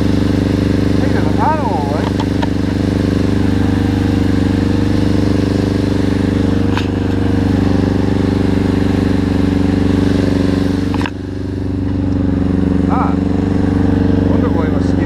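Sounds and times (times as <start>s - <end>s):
motorcycle engine running at low revs: 0.0s - 15.0s.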